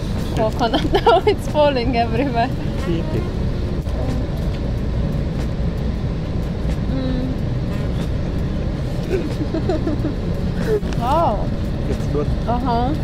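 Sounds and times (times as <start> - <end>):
bus engine rumble: 0.0 - 13.0
road noise: 0.0 - 13.0.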